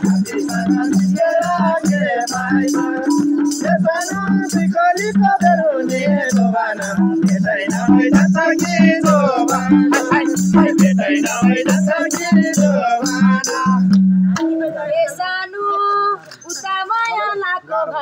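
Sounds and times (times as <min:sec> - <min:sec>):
person singing: 0:00.0 - 0:13.9
low pulsing beat: 0:00.0 - 0:15.0
folk singing: 0:00.0 - 0:15.8, 0:16.5 - 0:18.0.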